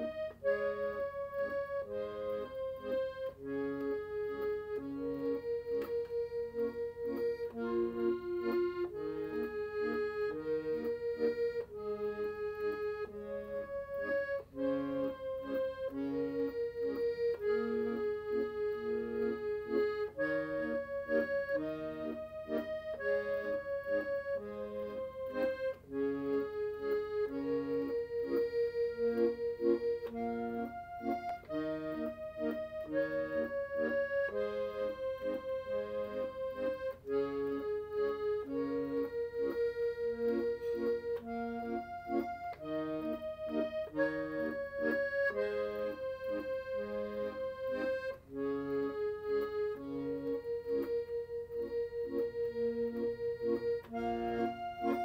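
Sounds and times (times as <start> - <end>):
accordion bass chords: 0.0 - 55.0
accordion melody: 0.0 - 55.0.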